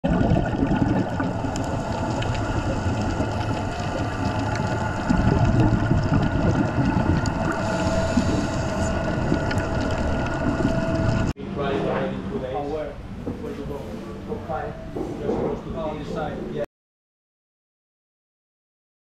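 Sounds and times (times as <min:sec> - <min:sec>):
underwater boat engine drone: 0:00.1 - 0:11.3.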